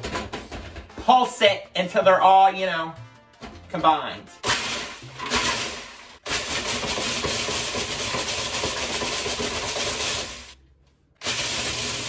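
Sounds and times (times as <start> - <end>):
food processor grinding cookies: 4.4 - 10.6, 11.2 - 12.0.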